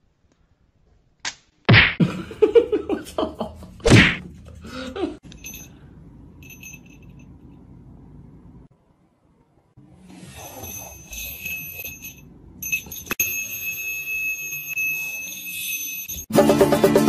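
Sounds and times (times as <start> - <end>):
small bell ringing: 5.2 - 7.4, 10.4 - 16.3
music: 16.3 - 17.0.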